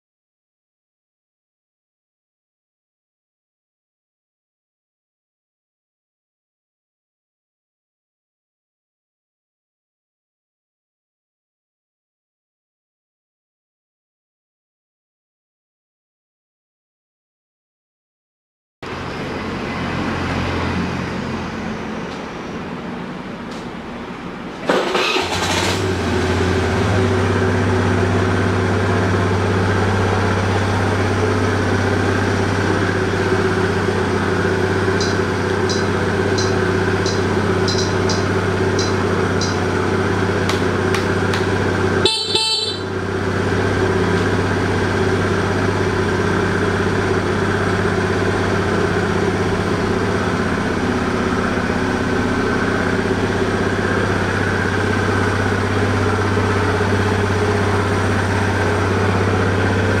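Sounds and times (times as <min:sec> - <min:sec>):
scooter engine running: 0:24.7 - 1:00.0.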